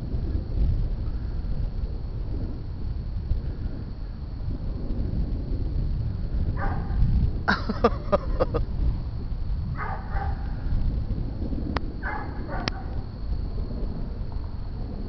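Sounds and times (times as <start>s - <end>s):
low rumble: 0.0s - 15.0s
dog barking: 6.6s - 7.0s, 9.8s - 10.5s, 12.0s - 13.0s.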